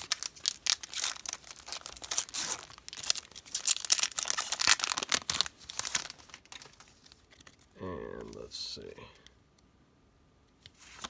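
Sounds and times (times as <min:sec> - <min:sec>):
foil wrapper crinkling and tearing: 0:00.0 - 0:07.6.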